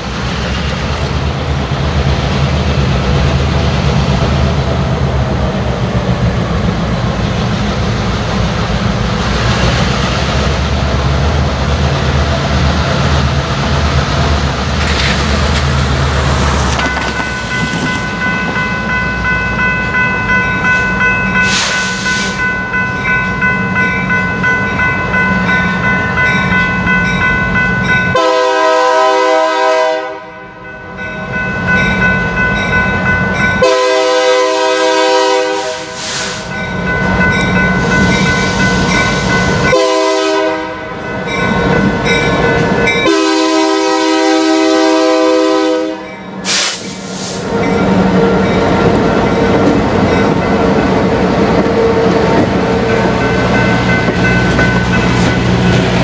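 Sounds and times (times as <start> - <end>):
locomotive air horn blasts: 28.1 - 30.4, 33.6 - 36.3, 39.7 - 40.9, 43.0 - 47.4.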